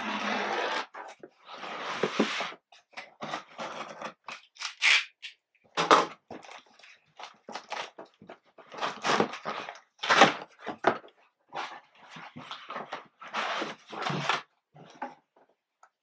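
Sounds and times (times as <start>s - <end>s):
cardboard and tape scraping: 0.0s - 5.2s, 5.9s - 14.5s
cardboard ripping: 8.7s - 10.9s.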